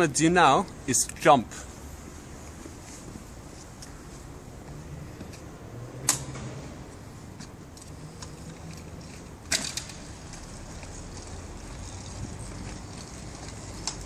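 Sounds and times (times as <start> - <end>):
small wheels rolling over cobbles: 7.8 - 14.0.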